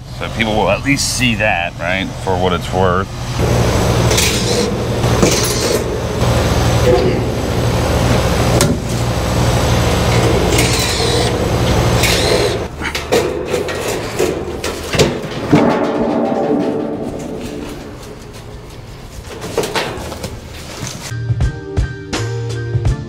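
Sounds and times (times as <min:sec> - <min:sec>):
steady low hum: 0:00.0 - 0:21.1
sheet metal clattering: 0:10.0 - 0:21.1.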